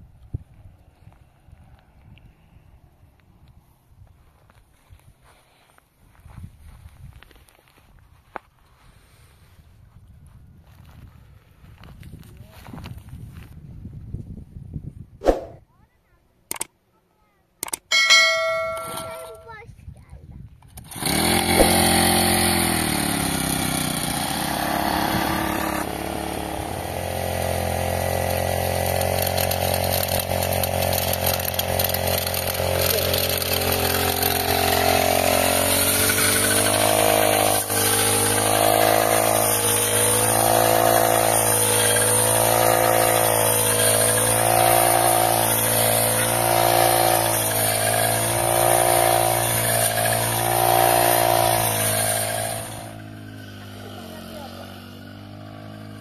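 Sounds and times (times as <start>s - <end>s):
brush cutter engine revving: 20.7s - 56.0s.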